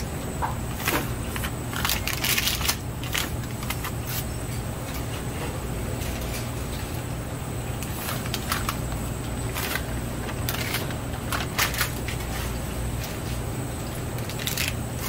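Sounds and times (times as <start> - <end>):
crackles and clicks: 0.8 - 4.3, 7.7 - 12.4, 13.9 - 15.0.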